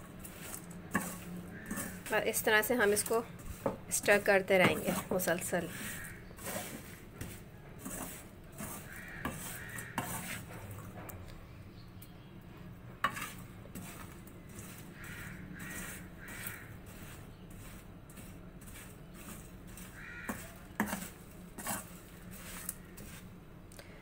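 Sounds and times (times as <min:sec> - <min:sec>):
metal ladle scraping a wok: 0:00.0 - 0:10.9, 0:13.0 - 0:23.4
crow cawing: 0:05.8 - 0:06.3, 0:08.9 - 0:10.0, 0:15.0 - 0:16.8, 0:19.9 - 0:20.6.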